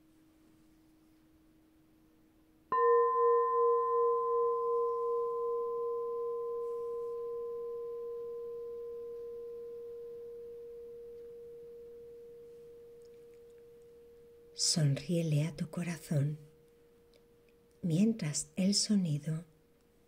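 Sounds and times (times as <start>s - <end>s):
singing bowl ringing: 2.7s - 17.7s
lower tone of another bowl: 2.7s - 17.8s.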